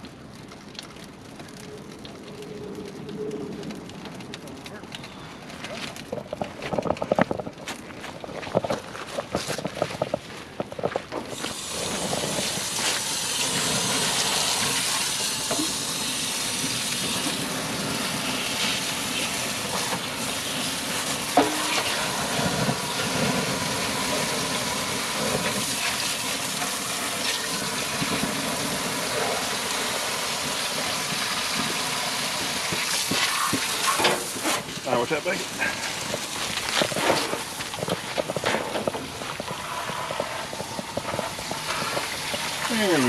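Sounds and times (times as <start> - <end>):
hose spraying water: 11.3 - 43.0.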